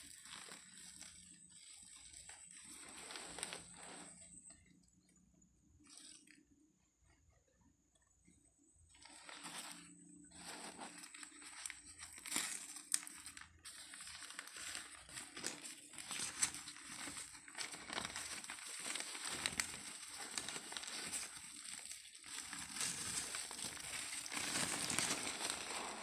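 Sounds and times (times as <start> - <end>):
newspaper crinkling: 0.0 - 4.8, 8.9 - 26.0.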